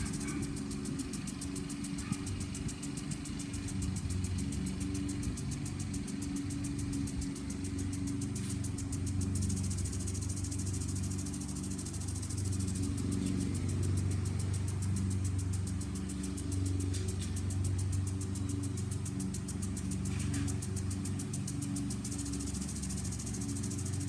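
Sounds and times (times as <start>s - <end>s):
lawn mower engine running: 0.0s - 24.0s
lawn sprinkler ticking: 0.0s - 24.0s.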